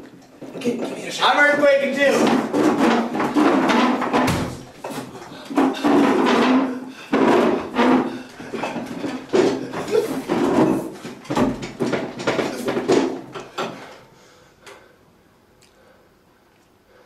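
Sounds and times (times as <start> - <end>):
wooden chair rattling and knocking: 0.2 - 13.8.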